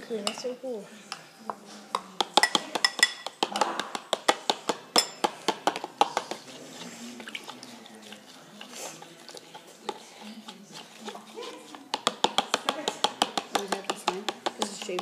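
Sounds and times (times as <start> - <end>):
spoon clinking against bowl: 0.2 - 0.5, 1.9 - 6.5.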